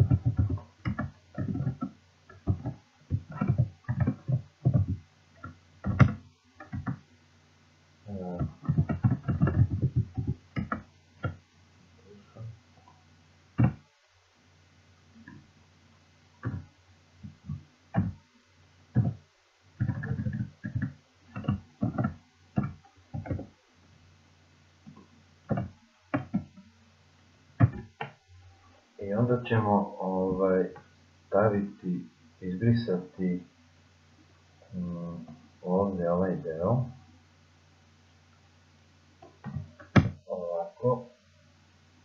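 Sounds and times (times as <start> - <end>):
keyboard typing: 0.0 - 7.0, 8.4 - 11.4, 13.6 - 13.8, 16.4 - 18.2, 18.9 - 19.2, 19.8 - 23.5, 24.9 - 26.6
steady low hum: 0.0 - 42.0.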